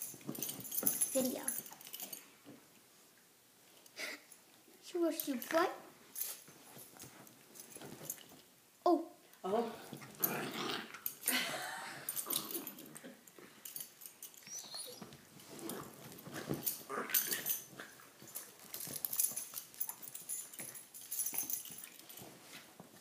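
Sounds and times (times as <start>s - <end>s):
dogs scuffling: 0.0s - 2.2s, 6.1s - 8.5s, 13.6s - 23.0s.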